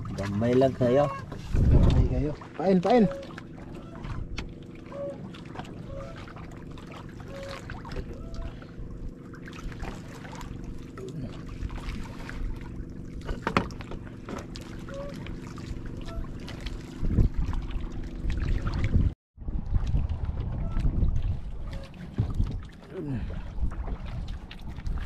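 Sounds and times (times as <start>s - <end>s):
steady low hum: 0.0s - 19.1s
water slapping against boat hull: 0.0s - 25.0s
knock on boat: 13.2s - 14.5s.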